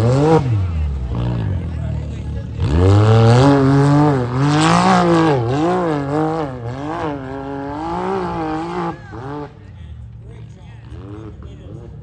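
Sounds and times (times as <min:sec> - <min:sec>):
engine revving hard: 0:00.0 - 0:01.7, 0:02.4 - 0:09.6.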